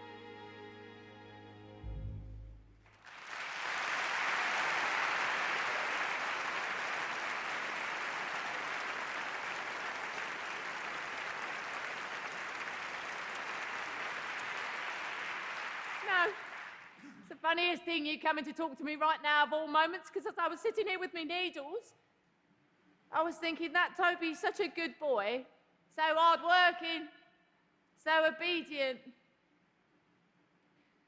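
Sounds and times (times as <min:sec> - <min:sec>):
orchestra chord: 0:00.0 - 0:02.8
audience applause: 0:02.8 - 0:17.1.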